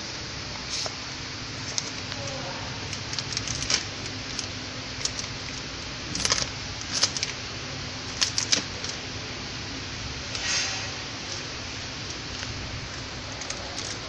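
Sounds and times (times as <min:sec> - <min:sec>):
steady background hiss: 0:00.0 - 0:14.0
plastic film crinkling: 0:00.7 - 0:09.1, 0:11.1 - 0:14.0
clicks against metal rollers: 0:01.7 - 0:07.4, 0:12.1 - 0:14.0.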